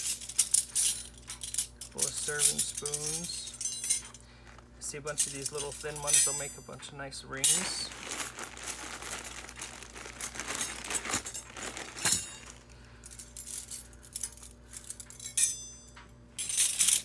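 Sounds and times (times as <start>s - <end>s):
plastic bag crinkling: 7.4s - 12.8s.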